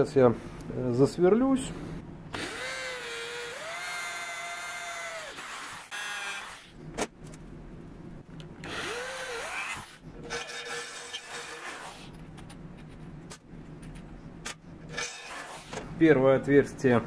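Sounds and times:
electric drill boring into steel: 2.3s - 6.7s, 8.6s - 11.6s.

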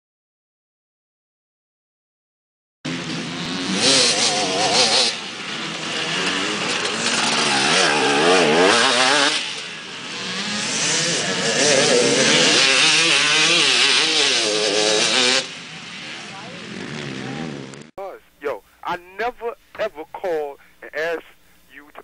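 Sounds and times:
dirt bike engine revving: 2.9s - 17.9s.

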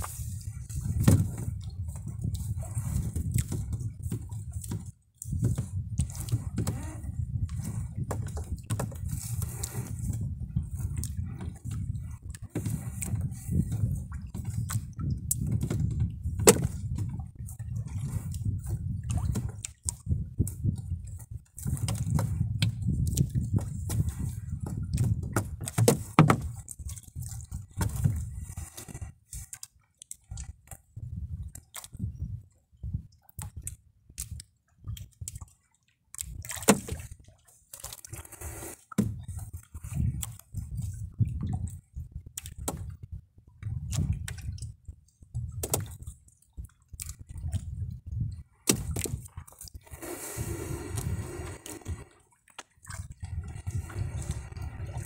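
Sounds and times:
low thuds against hull: 0.0s - 29.2s, 36.2s - 37.4s, 38.2s - 52.1s
sharp knocks against wooden hull: 0.8s - 1.6s, 8.0s - 9.2s, 14.2s - 17.2s, 21.8s - 26.6s, 36.4s - 37.1s, 38.9s - 39.2s, 45.6s - 46.0s, 48.6s - 49.3s.

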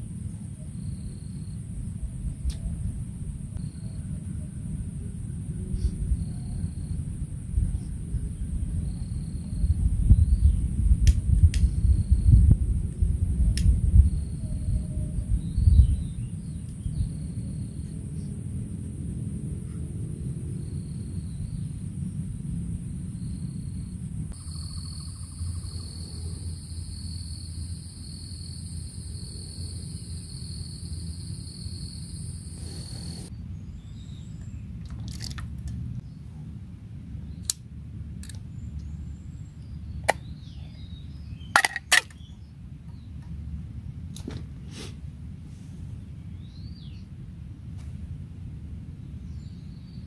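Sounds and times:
low steady rumble: 0.0s - 50.0s
faint bird chirps: 3.6s - 7.0s, 24.4s - 26.5s.

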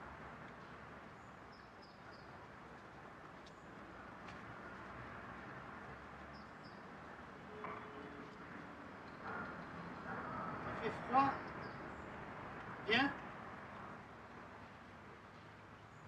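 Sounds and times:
faint ticks: 2.7s - 4.9s.

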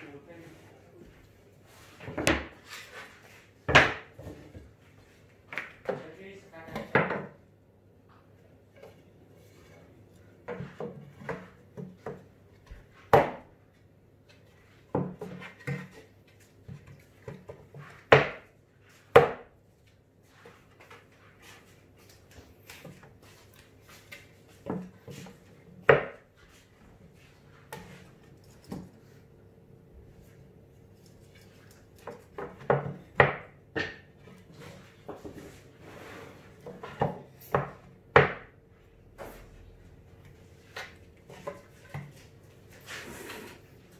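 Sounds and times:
wooden panels knocking: 32.1s - 34.2s.

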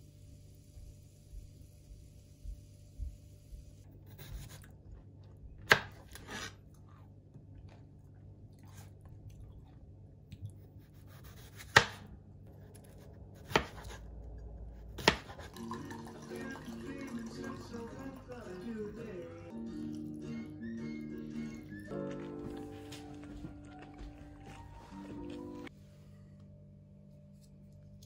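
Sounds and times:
knife chopping on plastic board: 5.6s - 6.5s, 11.3s - 12.1s, 13.4s - 13.9s, 15.0s - 15.4s
music: 15.6s - 28.0s.

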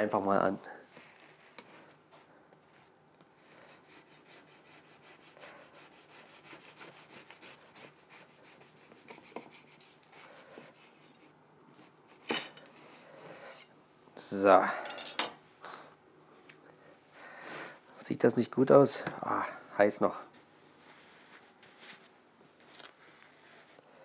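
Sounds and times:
knife sawing through bread: 3.4s - 11.2s.

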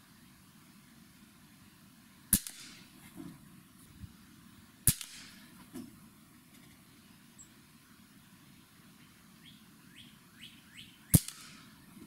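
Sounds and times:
air rifle shots: 2.3s - 3.0s, 4.8s - 5.5s, 11.1s - 11.8s.

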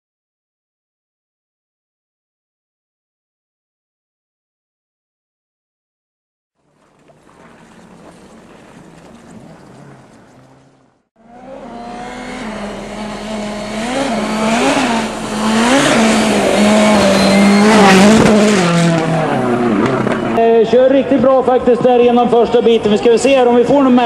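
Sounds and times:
faint steady drone: 6.6s - 17.7s
rally car engine revving: 6.6s - 20.4s.

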